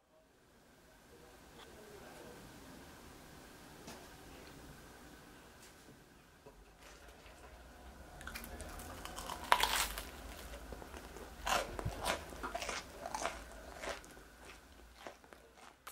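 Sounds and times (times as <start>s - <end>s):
crunchy chewing of toasted bread: 8.2s - 15.9s.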